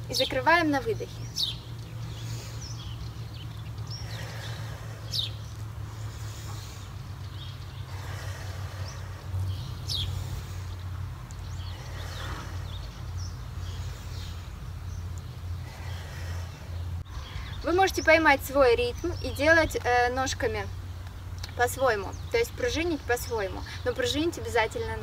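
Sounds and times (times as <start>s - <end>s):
birds chirping: 0.0s - 25.0s
steady low rumble: 0.0s - 25.0s.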